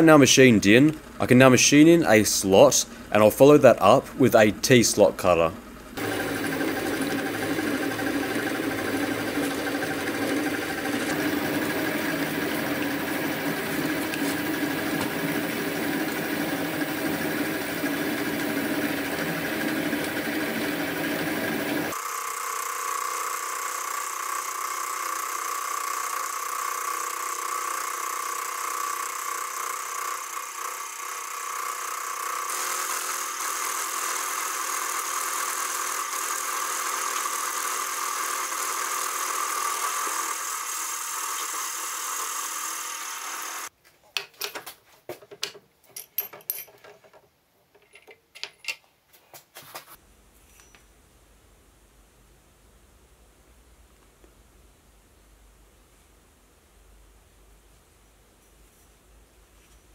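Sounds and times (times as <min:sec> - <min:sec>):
milling machine cutting metal: 0:06.0 - 0:22.2, 0:26.3 - 0:43.7.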